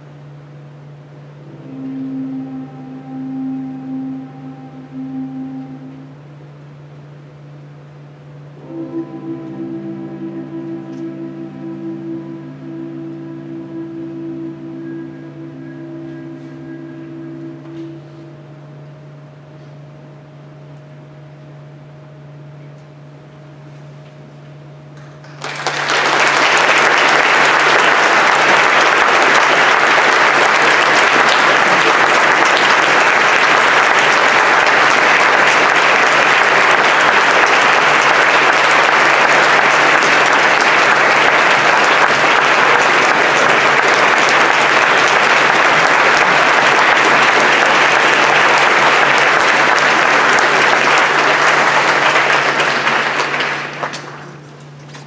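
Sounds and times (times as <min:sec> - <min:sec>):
audience applauding: 0:25.0 - 0:54.4.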